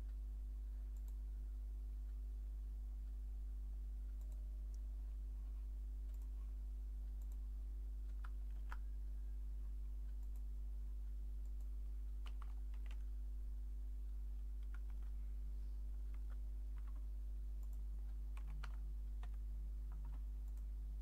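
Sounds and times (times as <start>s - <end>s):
steady low hum: 0.0s - 21.0s
computer keyboard typing: 8.1s - 8.9s, 11.4s - 13.1s, 14.6s - 15.2s, 16.0s - 20.7s.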